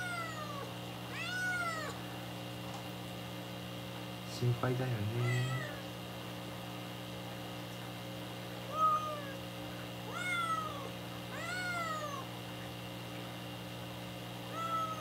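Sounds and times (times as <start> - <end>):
kitten meowing: 0.0 - 2.0, 5.2 - 5.8, 8.7 - 9.4, 10.1 - 12.3, 14.5 - 15.0.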